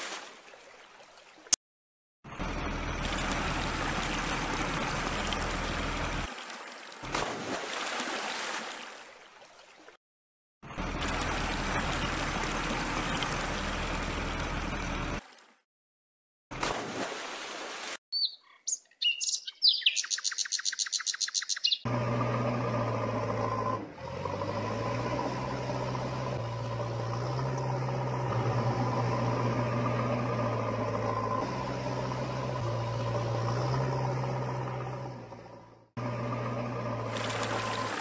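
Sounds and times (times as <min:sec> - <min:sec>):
engine-like hum: 0:02.3 - 0:06.4, 0:07.0 - 0:07.6, 0:10.6 - 0:15.4, 0:21.8 - 0:38.0
high chirps: 0:18.1 - 0:21.9.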